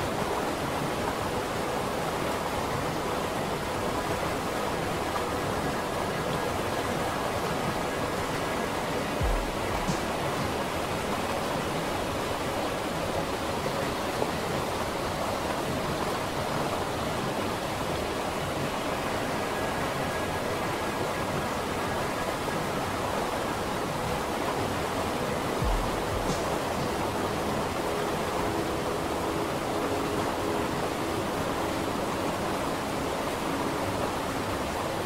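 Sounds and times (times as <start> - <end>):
steady ambience hiss: 0.0 - 35.0
soft low thump: 9.2 - 10.1, 25.6 - 26.5.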